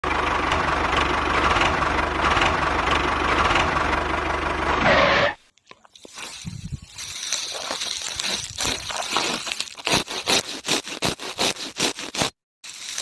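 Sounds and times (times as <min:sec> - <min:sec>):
machine motor pulsing: 0:00.0 - 0:05.4.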